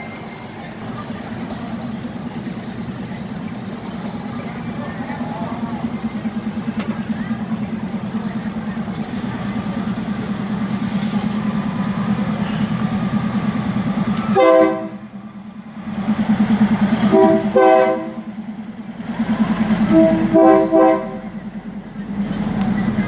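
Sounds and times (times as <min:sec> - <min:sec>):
diesel train engine throbbing: 0:00.0 - 0:23.0
train horn toots: 0:14.3 - 0:15.1, 0:17.0 - 0:18.3, 0:19.8 - 0:21.4.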